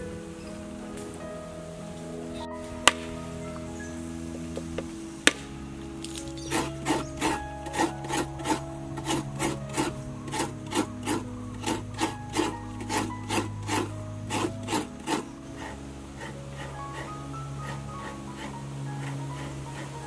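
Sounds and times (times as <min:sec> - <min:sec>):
coconut scraper rasping: 0:06.1 - 0:16.7.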